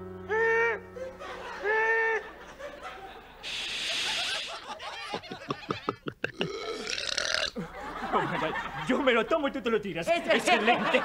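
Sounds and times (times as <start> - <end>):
snickering sounds: 1.0 - 8.3
short hiss: 3.4 - 4.7.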